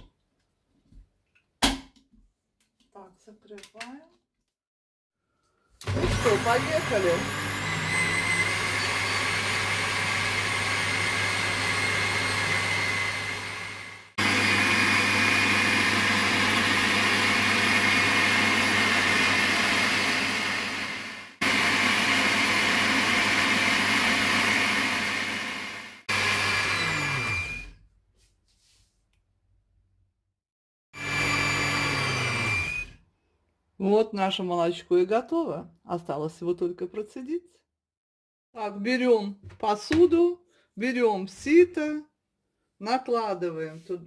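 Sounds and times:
blender motor running: 0:05.8 - 0:27.8, 0:31.0 - 0:33.0.

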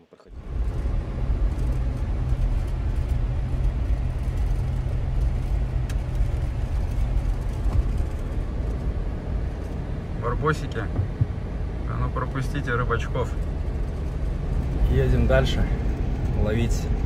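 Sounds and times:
car driving on gravel: 0:00.3 - 0:17.0.

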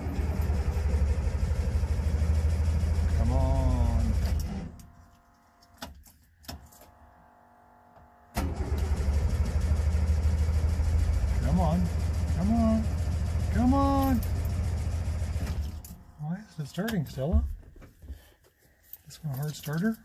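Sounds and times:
engine starter cranking: 0:00.0 - 0:04.8, 0:08.4 - 0:16.0.

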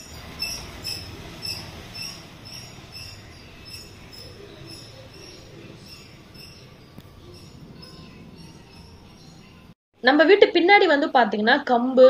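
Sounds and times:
small animal chirping: 0:00.0 - 0:08.9.

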